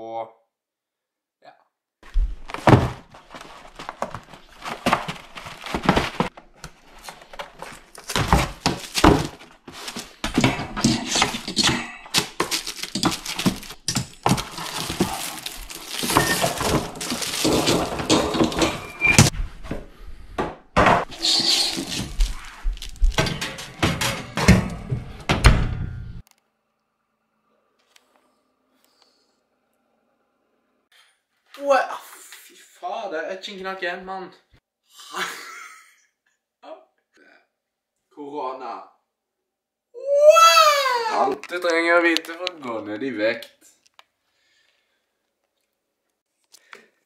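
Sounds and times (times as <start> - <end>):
cardboard rustling: 2.0 - 19.3, 21.2 - 24.0
oven rack knocks and clatters: 23.2 - 26.2.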